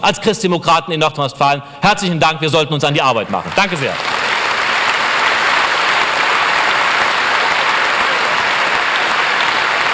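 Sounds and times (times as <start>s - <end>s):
audience applauding: 3.2s - 9.9s.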